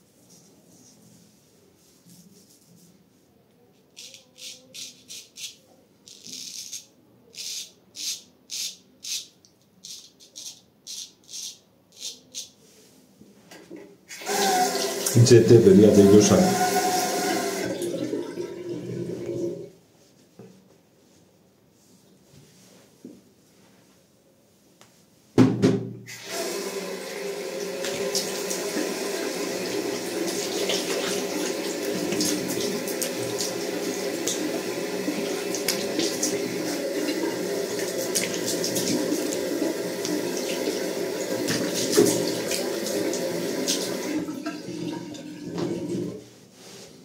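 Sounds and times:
tap water running: 14.1 - 19.7, 26.1 - 46.2.

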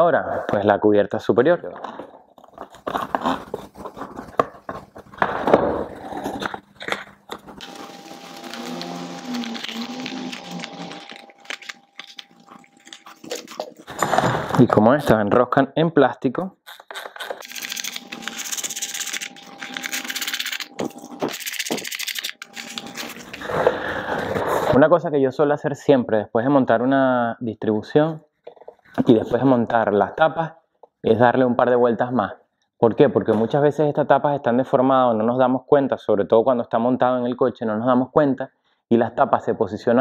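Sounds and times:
steady hum: 5.9 - 14.6, 17.4 - 24.7.

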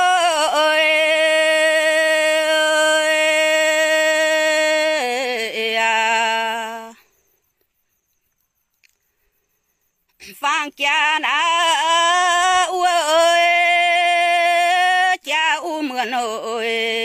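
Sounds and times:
woman singing unaccompanied: 0.0 - 7.2, 10.2 - 17.0.

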